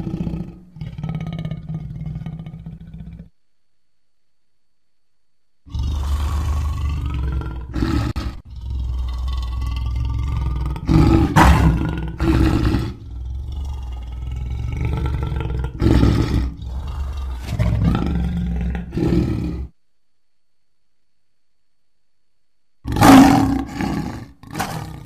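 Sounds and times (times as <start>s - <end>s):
lion growling and roaring: 0.0s - 3.3s, 5.7s - 19.8s, 22.9s - 25.0s.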